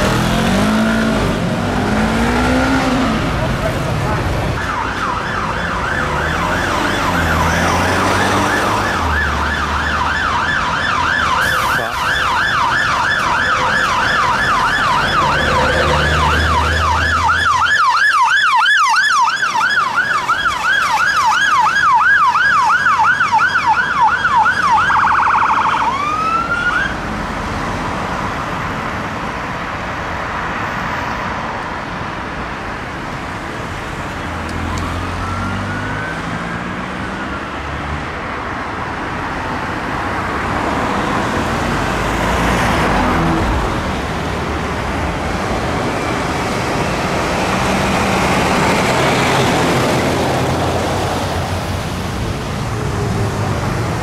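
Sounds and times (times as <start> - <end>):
road noise: 0.0 - 54.0
fire engine siren: 4.1 - 27.1, 34.2 - 54.0.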